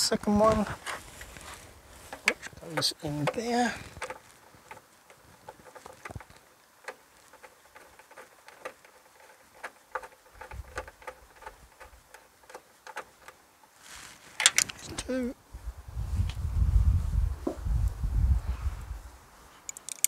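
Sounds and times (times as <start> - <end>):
nut clicking onto screw: 14.4 - 15.0, 19.7 - 20.0
soft bump: 17.4 - 17.8.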